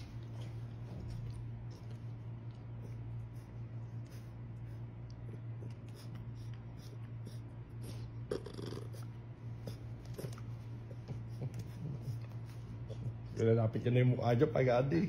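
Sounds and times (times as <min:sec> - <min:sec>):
puppy rustling and scratching: 0:00.0 - 0:04.8, 0:09.0 - 0:14.0
steady low hum: 0:00.0 - 0:15.0.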